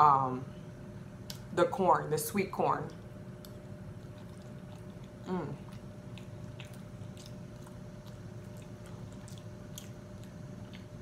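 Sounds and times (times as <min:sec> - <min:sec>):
person chewing food: 0:03.3 - 0:11.0.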